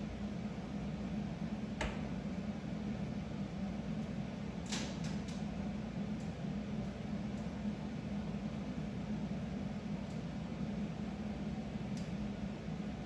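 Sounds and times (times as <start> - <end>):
low room hum: 0.0 - 13.0
light tick: 12.0 - 12.2.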